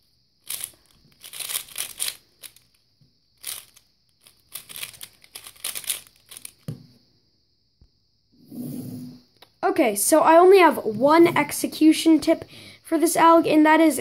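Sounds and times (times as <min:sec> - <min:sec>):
plastic cube clicking and clacking: 0:00.4 - 0:02.8, 0:03.4 - 0:06.8.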